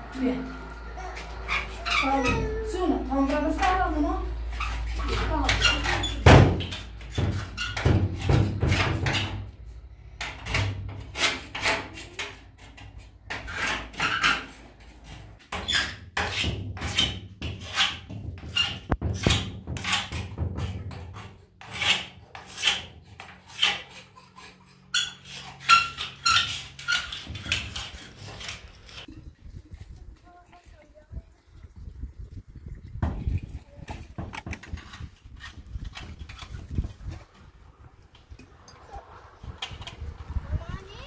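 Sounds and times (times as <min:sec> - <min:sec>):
rasping scraping over rough surface: 0:10.8 - 0:29.1, 0:33.8 - 0:37.5.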